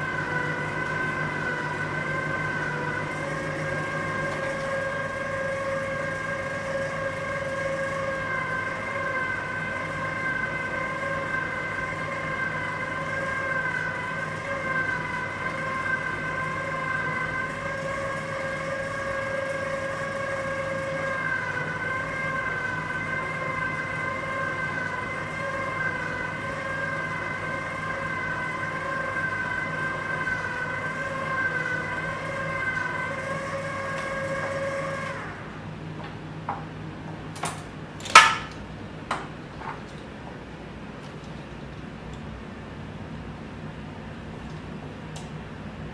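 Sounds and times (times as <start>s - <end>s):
pasta machine motor whining: 0.0s - 36.0s.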